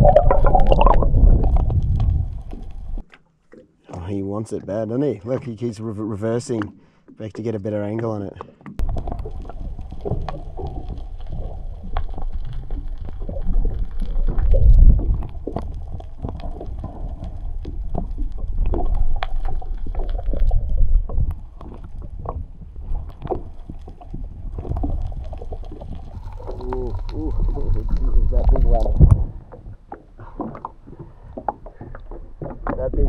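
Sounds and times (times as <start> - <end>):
water slopping around a boat: 7.8 - 33.0.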